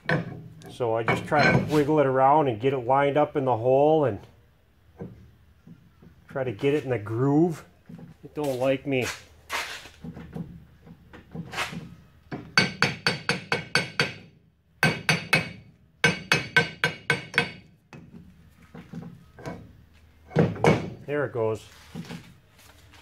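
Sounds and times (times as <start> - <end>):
hammer striking metal: 12.4 - 17.7.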